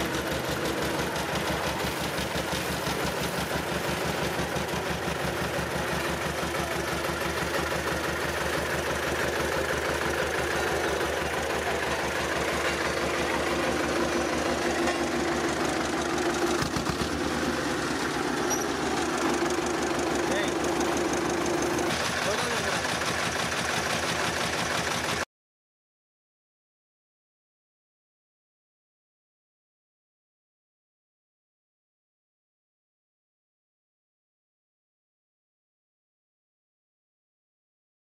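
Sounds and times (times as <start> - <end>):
road roller diesel engine running: 0.0 - 25.3.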